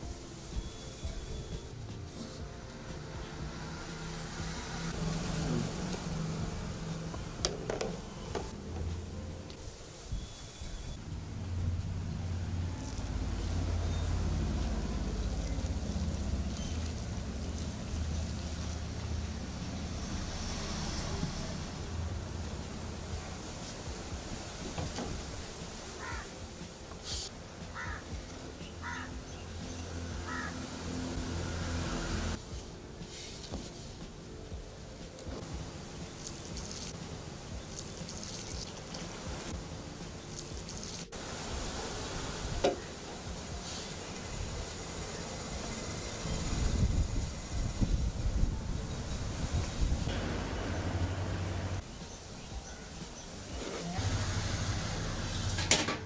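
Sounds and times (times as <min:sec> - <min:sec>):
low steady rumble: 0:01.6 - 0:24.6.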